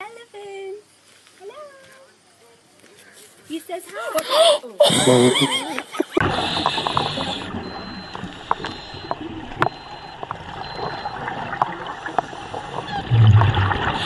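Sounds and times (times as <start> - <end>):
steady underwater hiss: 0.0 - 14.0
regulator bubbles burbling: 6.2 - 14.0
sharp clicks underwater: 6.2 - 14.0.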